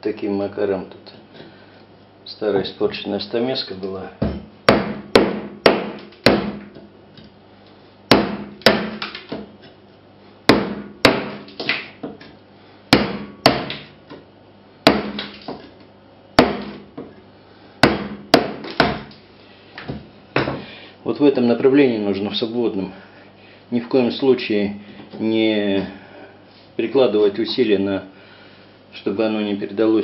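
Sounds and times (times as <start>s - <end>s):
hammer striking chisel: 4.7s - 6.6s, 8.1s - 9.4s, 10.5s - 11.8s, 12.9s - 13.8s, 14.8s - 15.4s, 16.4s - 16.8s, 17.8s - 19.1s.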